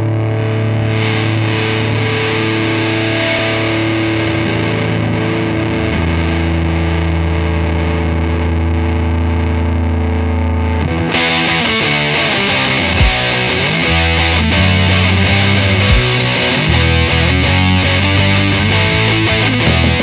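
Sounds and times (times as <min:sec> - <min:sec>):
distorted electric guitar chords: 0:00.0 - 0:20.0
steady low bass note: 0:13.0 - 0:20.0.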